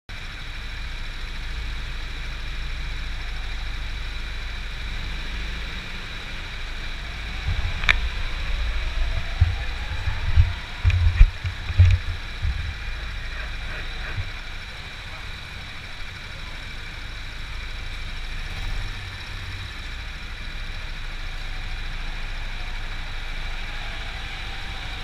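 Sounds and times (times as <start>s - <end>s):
go-kart engines idling: 0.1s - 25.0s
low thumps: 6.8s - 16.1s.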